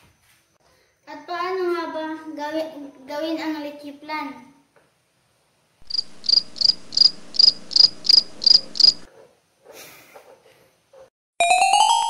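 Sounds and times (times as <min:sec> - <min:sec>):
crickets chirping: 0:05.8 - 0:09.1.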